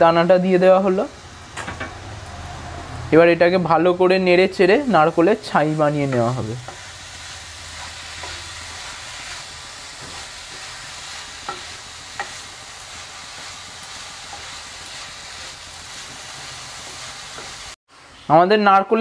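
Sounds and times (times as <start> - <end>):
light sizzle: 0.0 - 18.3
wooden spatula scraping a wok: 4.6 - 17.8.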